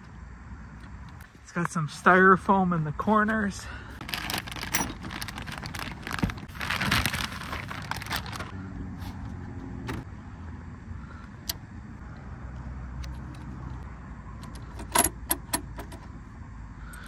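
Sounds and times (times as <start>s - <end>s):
plastic wrapping rustling: 4.0s - 8.6s.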